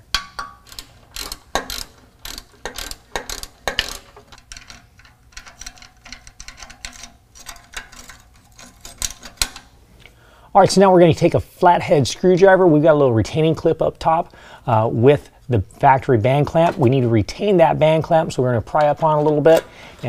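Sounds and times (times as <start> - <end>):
metal parts being handled: 0.0 - 9.8, 18.0 - 20.0
ratchet wrench clicking: 0.1 - 9.7.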